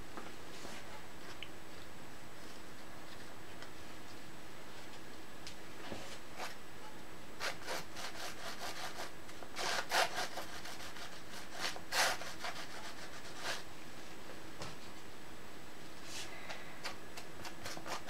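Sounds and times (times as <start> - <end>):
palette knife scraping canvas: 7.4 - 13.6.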